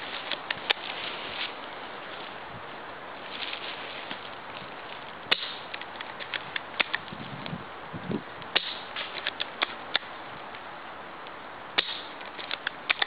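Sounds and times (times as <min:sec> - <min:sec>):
airsoft rifle shot snaps: 0:05.3 - 0:05.8, 0:08.5 - 0:10.1, 0:11.8 - 0:13.0.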